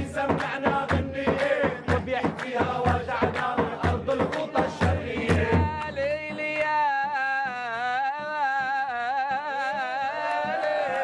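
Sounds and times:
male voices chanting: 0.0 - 6.4, 9.2 - 11.0
hand drum: 0.0 - 6.6
men clapping in rhythm: 0.0 - 11.0.

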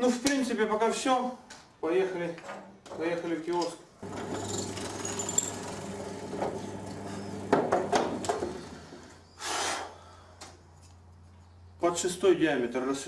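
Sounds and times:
drill press humming: 4.0 - 9.2.

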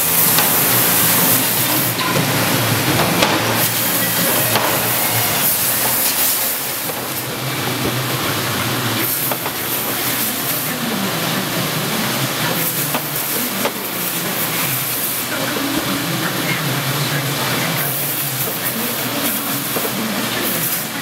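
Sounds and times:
machinery hissing: 0.0 - 21.0.

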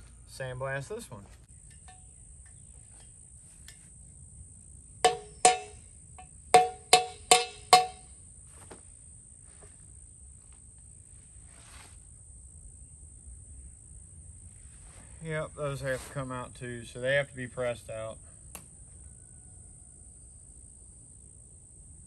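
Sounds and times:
high insect trill: 0.0 - 22.0
hammer blows on metal: 5.0 - 8.2.

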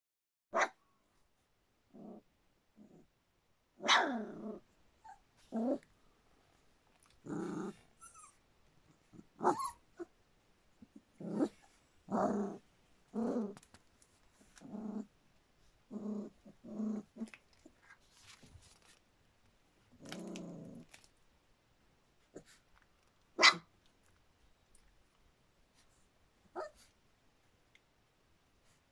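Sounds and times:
puppy yaps: 0.6 - 0.8, 3.8 - 4.2, 9.4 - 10.1, 23.4 - 23.7
puppies play-growling: 3.9 - 5.9, 7.0 - 10.1, 10.8 - 13.7, 14.3 - 15.2, 15.8 - 18.0, 19.9 - 21.1.

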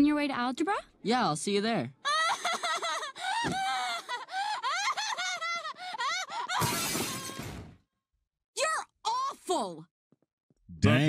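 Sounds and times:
cartoon girl wailing: 3.8 - 7.6
window glass breaking: 6.6 - 7.7.

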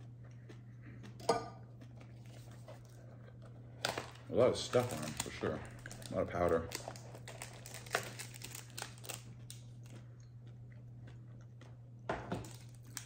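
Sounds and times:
chip crunching: 0.0 - 13.0
low steady hum: 0.0 - 13.0.

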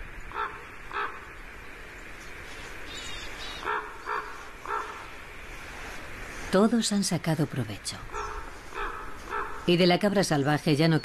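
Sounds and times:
ravens croaking: 0.0 - 6.2, 7.9 - 10.2.

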